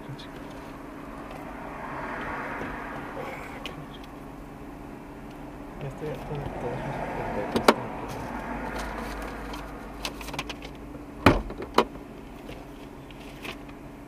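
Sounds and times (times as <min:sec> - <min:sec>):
car idling: 0:00.0 - 0:14.0
clicks and knocks in car cabin: 0:07.5 - 0:13.8.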